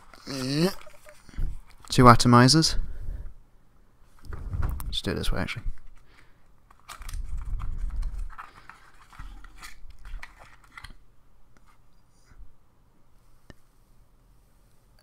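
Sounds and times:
packaging scraping and rustling: 0:00.0 - 0:02.0, 0:06.7 - 0:11.0.

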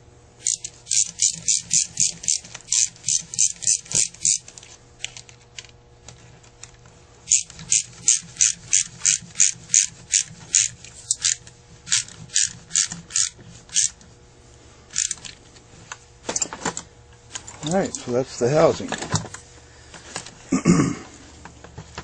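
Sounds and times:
hand tool clicking: 0:00.4 - 0:04.4, 0:07.3 - 0:13.9, 0:14.9 - 0:15.3.

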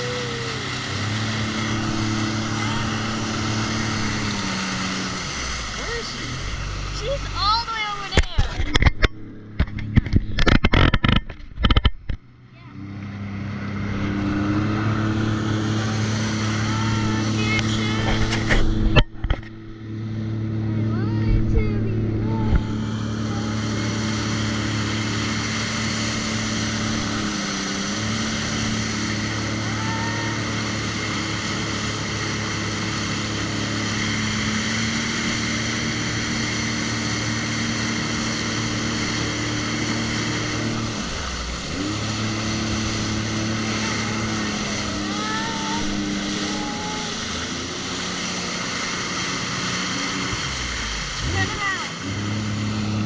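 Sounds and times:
jet ski engine running: 0:00.0 - 0:53.0
rushing water: 0:00.0 - 0:53.0.

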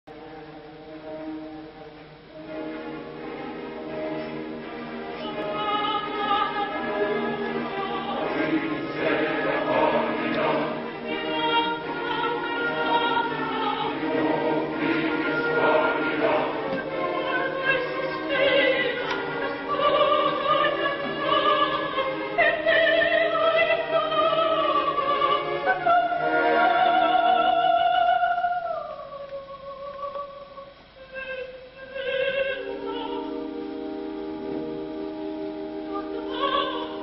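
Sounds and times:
orchestra: 0:00.1 - 0:37.0
soprano singing: 0:02.4 - 0:37.0
chorus singing: 0:02.8 - 0:30.4, 0:35.5 - 0:37.0.

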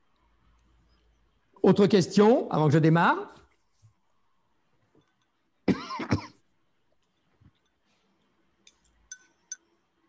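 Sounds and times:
person clearing throat: 0:05.7 - 0:06.4.

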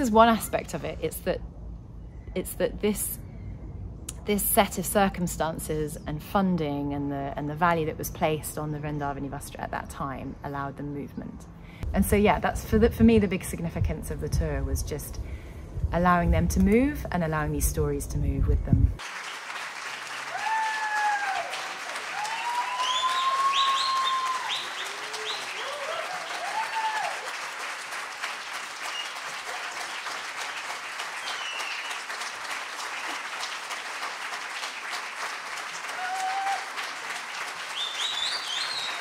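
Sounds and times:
audience applauding: 0:19.0 - 0:39.0
whoops and whistles: 0:22.2 - 0:27.2, 0:31.2 - 0:32.0, 0:35.9 - 0:36.7, 0:37.8 - 0:39.0.

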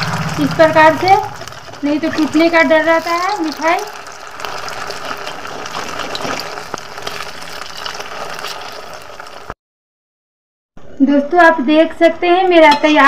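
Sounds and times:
oil sizzling and crackling: 0:00.0 - 0:09.6.

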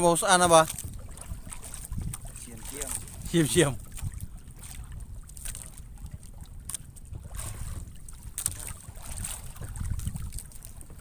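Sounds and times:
water sloshing against boat: 0:00.0 - 0:11.0
wind buffeting microphone: 0:00.0 - 0:11.0.

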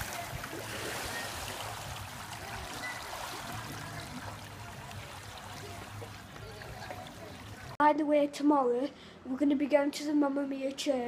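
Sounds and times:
pool water sloshing and trickling: 0:00.0 - 0:07.8.

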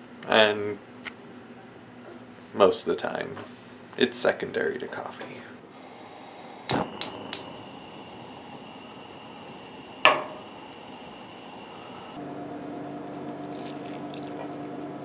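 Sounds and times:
burning gas hissing: 0:05.8 - 0:12.2
spark igniter clicks: 0:05.9 - 0:10.7.

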